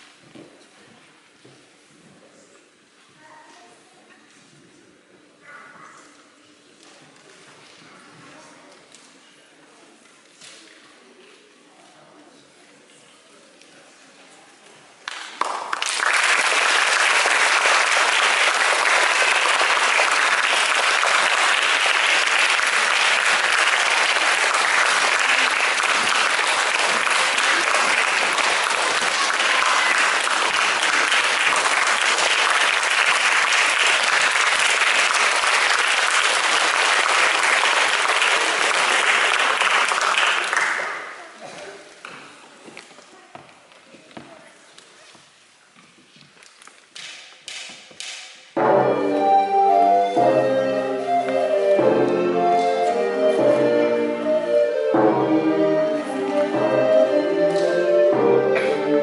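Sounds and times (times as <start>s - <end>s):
audience applauding: 15.1s - 41.3s.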